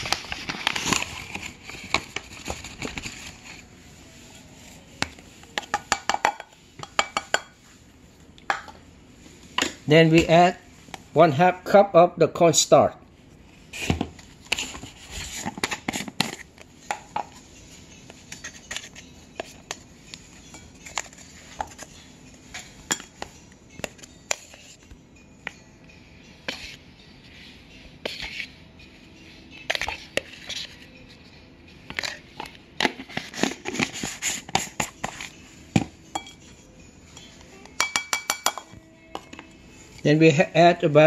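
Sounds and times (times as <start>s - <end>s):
plastic cup scooping and scraping: 0.0s - 5.7s, 13.7s - 22.8s, 27.6s - 28.6s, 29.6s - 30.9s, 31.9s - 35.4s.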